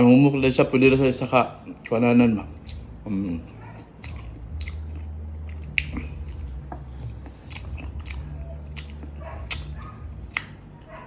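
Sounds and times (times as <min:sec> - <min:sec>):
steady low hum: 0:00.0 - 0:11.0
person chewing food: 0:02.5 - 0:11.0
wet mouth clicks and smacks: 0:02.6 - 0:02.9, 0:04.0 - 0:10.6.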